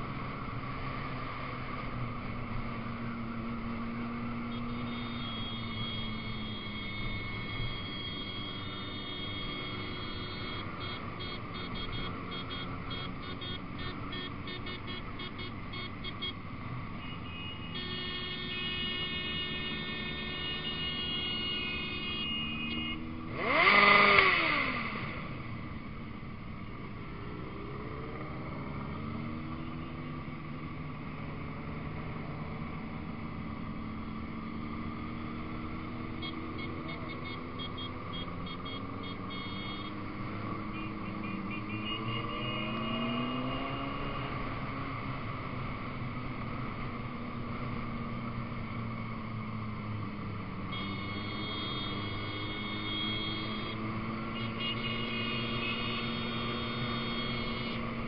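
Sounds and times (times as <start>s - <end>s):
motorcycle engines running: 0.0s - 58.0s
high pulsing beep tones: 4.5s - 16.4s, 36.2s - 40.0s, 50.7s - 57.8s
motorcycle revving past: 23.1s - 25.5s, 39.3s - 45.2s, 50.7s - 58.0s.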